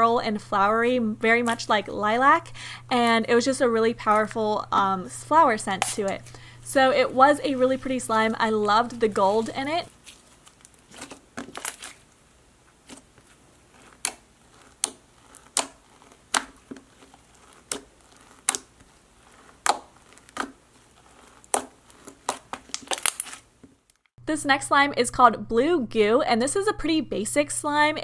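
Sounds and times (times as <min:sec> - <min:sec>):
slime squishing: 0:05.5 - 0:23.9
slime popping: 0:12.8 - 0:23.5.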